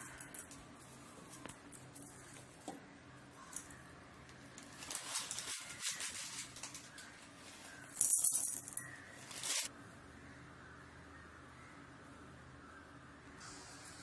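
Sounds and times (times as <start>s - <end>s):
peppercorns rattling in grinder jar: 4.6s - 9.7s.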